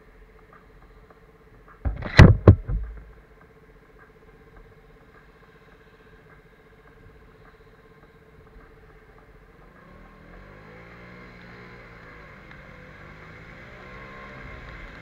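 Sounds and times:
sharp knocks: 0:01.9 - 0:03.2.

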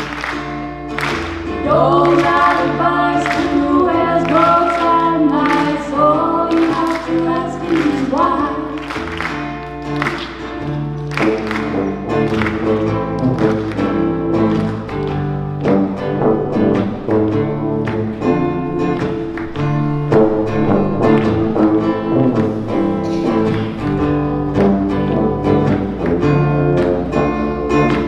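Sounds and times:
plucked strings: 0:00.0 - 0:28.0
women singing in harmony: 0:01.6 - 0:08.8
low bass line: 0:15.4 - 0:28.0.

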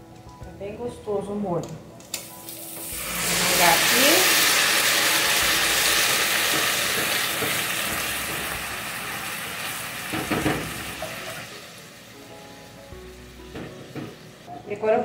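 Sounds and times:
meat sizzling in a pot: 0:02.2 - 0:14.5
knocks: 0:13.5 - 0:14.2.

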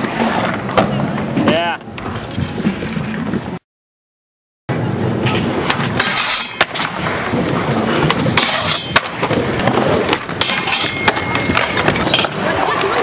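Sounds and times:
skateboard wheels rolling on concrete: 0:00.0 - 0:03.6, 0:04.7 - 0:13.0
skateboard clacking: 0:05.0 - 0:13.0.

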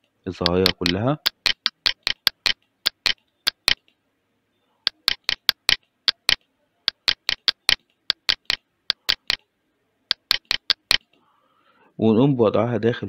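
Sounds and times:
computer mouse clicking: 0:00.4 - 0:04.0, 0:04.9 - 0:09.4, 0:10.1 - 0:11.2.

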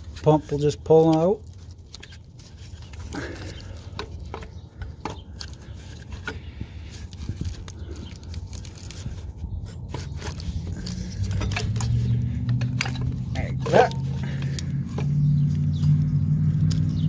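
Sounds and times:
clicks and scrapes of car parts: 0:00.0 - 0:17.0.

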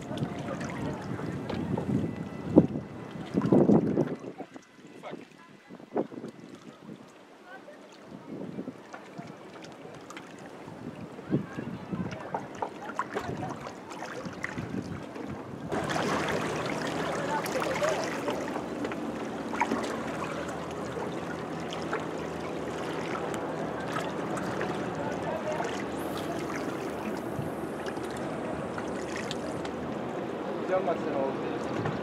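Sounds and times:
sea water splashing on rocks: 0:12.0 - 0:30.0.

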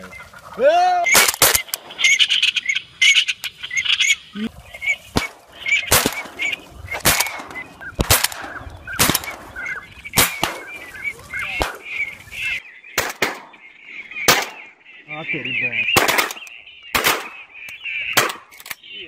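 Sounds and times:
ducks calling: 0:00.0 - 0:19.0
shotgun shots: 0:01.1 - 0:02.1, 0:05.2 - 0:10.8, 0:11.6 - 0:11.9, 0:13.0 - 0:13.6, 0:14.2 - 0:14.7, 0:16.0 - 0:17.4, 0:18.1 - 0:18.5.

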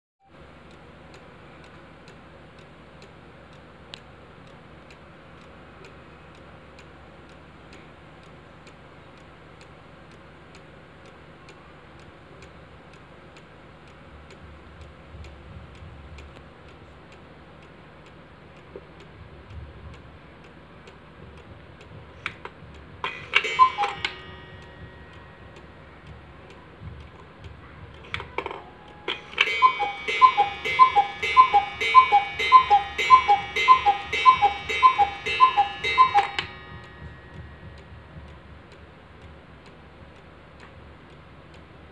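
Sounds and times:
clock ticking: 0:00.3 - 0:41.9
two-note cuckoo calls: 0:23.0 - 0:26.2, 0:28.4 - 0:37.9
gong ring: 0:23.1 - 0:26.1, 0:28.9 - 0:38.1.

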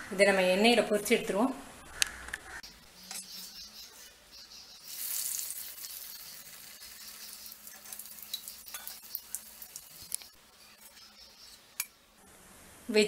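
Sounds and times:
food sizzling in hot oil: 0:02.7 - 0:12.2.

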